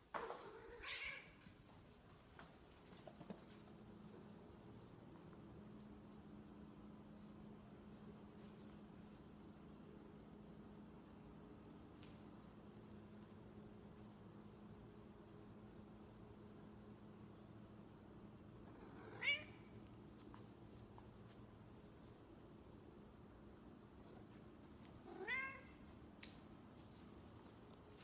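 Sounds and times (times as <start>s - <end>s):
cat meowing: 0.5s - 1.4s, 19.0s - 19.6s, 25.0s - 25.8s.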